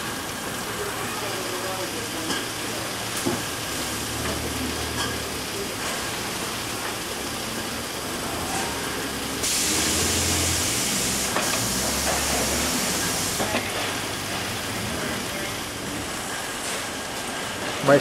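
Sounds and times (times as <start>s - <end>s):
factory machinery noise: 0.0s - 18.0s
pneumatic air hiss: 9.4s - 13.8s.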